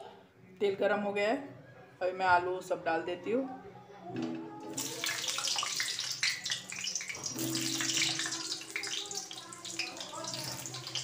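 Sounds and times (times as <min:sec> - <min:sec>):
oil spitting and popping: 0:04.8 - 0:11.0
potatoes sizzling in hot oil: 0:04.8 - 0:11.0.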